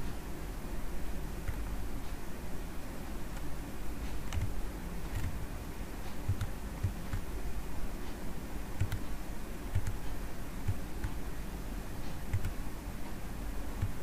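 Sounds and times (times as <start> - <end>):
low background hum: 0.0 - 14.0
computer mouse clicking: 1.4 - 1.7, 3.3 - 3.5, 4.1 - 5.4, 6.1 - 7.3, 8.8 - 11.2, 12.1 - 12.6, 13.8 - 14.0.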